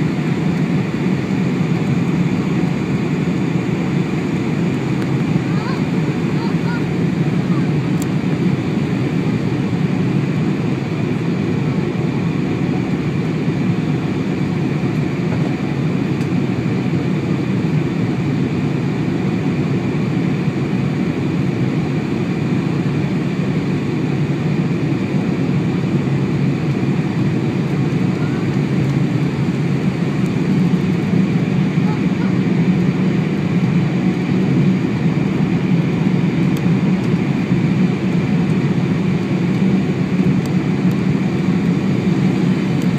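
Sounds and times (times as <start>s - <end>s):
airplane cabin engine and airflow rush: 0.0s - 42.9s.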